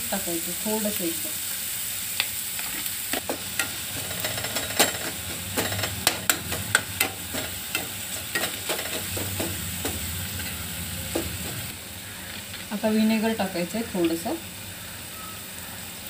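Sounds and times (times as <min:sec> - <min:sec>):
vegetables sizzling in oil: 0:00.0 - 0:16.0
steel spoon scraping pan: 0:02.6 - 0:12.6.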